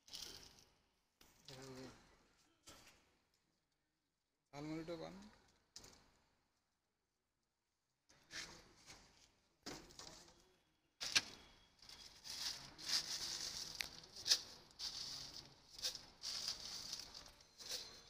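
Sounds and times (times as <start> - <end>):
plastic sack rustling: 11.0 - 18.0.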